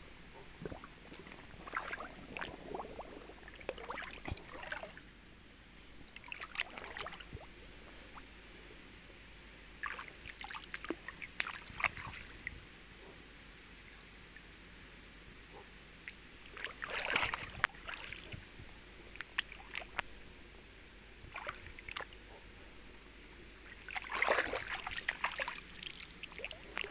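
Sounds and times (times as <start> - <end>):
stream water splashing: 0.6 - 5.0, 6.2 - 7.5, 9.8 - 12.5, 16.4 - 18.4, 19.2 - 20.1, 21.3 - 22.2, 23.7 - 26.9
water trickling: 0.6 - 5.0, 23.7 - 26.9.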